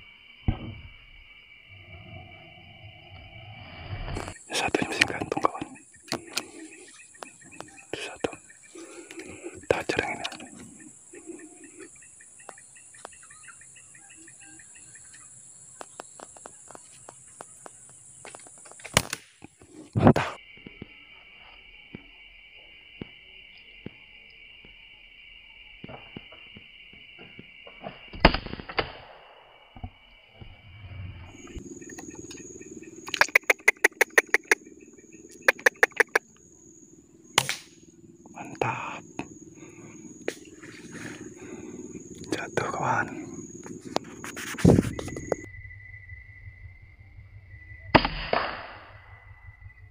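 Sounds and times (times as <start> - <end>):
insects droning: 0.0 - 49.9
bird chirping: 4.2 - 18.8, 31.3 - 46.2
steady high whine: 30.4 - 49.9
steady low drone: 30.6 - 49.9
sharp clicking chips: 33.0 - 34.6, 35.3 - 36.4
air rifle shot: 37.4 - 37.8, 48.0 - 49.0.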